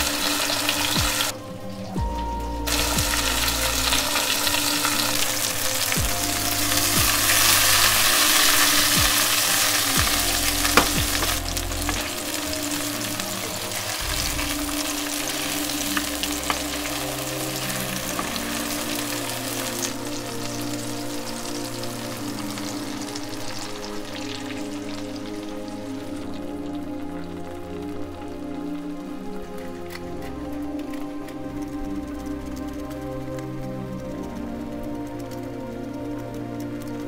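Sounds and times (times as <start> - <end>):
food sizzling in a pan: 0.0 - 1.3, 2.7 - 27.4.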